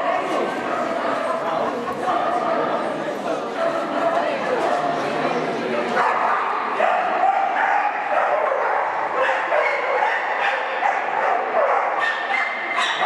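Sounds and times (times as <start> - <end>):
dog barking and yipping: 6.9 - 13.0.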